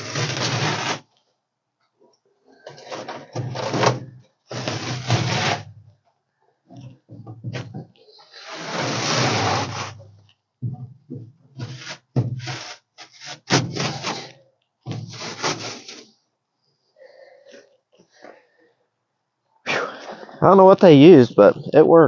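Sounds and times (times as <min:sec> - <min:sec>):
carpet ripping: 0:00.0 - 0:01.2, 0:02.8 - 0:05.7, 0:08.4 - 0:10.0, 0:11.6 - 0:16.1.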